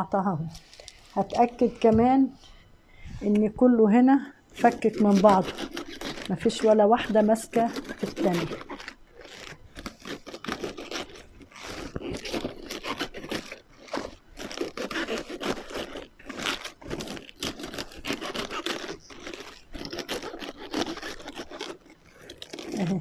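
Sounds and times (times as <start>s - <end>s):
cabbage leaves crunching: 4.6s - 23.0s
knife blade scraping: 4.6s - 23.0s.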